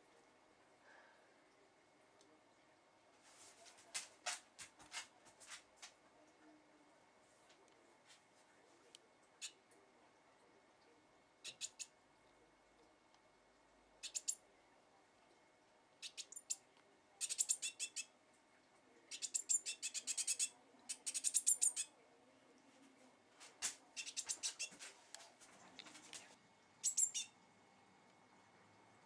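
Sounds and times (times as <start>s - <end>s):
bird chirping rapidly: 11.4s - 11.9s, 14.0s - 14.4s, 16.0s - 16.6s, 17.2s - 18.1s, 19.1s - 21.9s, 24.0s - 24.7s, 26.8s - 27.4s.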